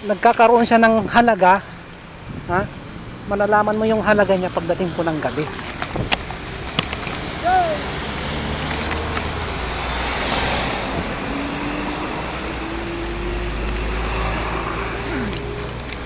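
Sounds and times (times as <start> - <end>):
road traffic noise: 0.0 - 16.0
vehicle engine rising in pitch: 7.3 - 16.0.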